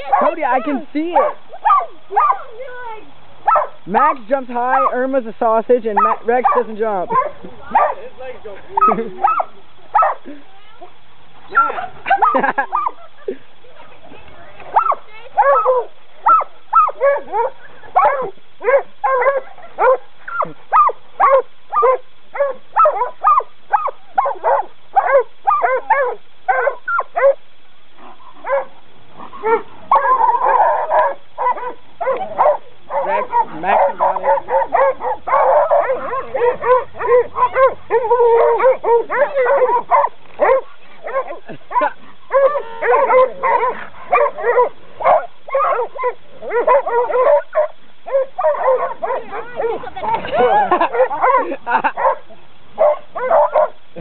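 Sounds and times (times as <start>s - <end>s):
dogs barking excitedly: 0.0s - 54.0s.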